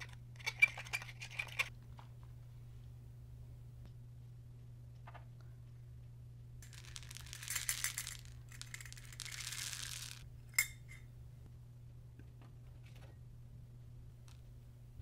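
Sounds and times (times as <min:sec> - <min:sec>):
beads pouring into glass bowl: 0:06.6 - 0:10.2
sharp clink: 0:10.5 - 0:11.0.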